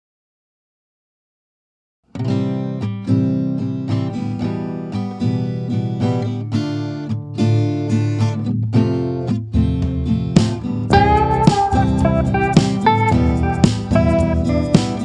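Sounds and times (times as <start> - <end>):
acoustic guitar music: 2.1 - 15.0
bass part: 9.6 - 15.0.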